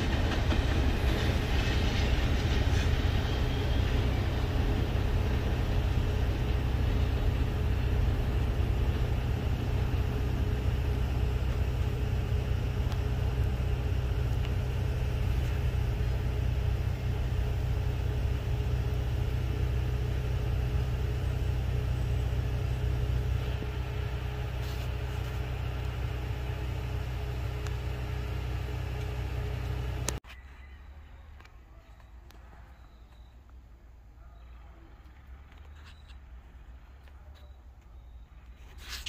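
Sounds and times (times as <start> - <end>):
freight train rumbling by: 0.0 - 30.2.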